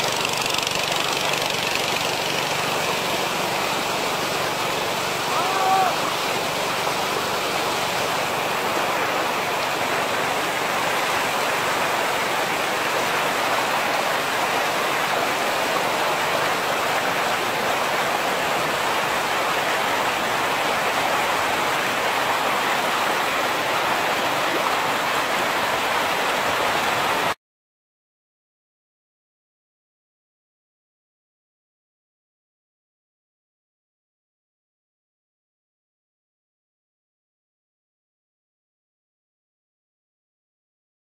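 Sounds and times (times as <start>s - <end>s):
river rushing over rocks: 0.0s - 27.4s.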